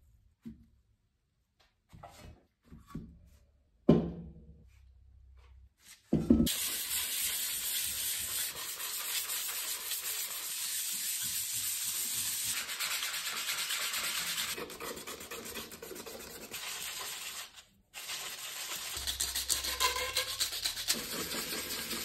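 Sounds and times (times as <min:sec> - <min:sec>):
sandpaper scratching on metal: 0:06.5 - 0:22.0.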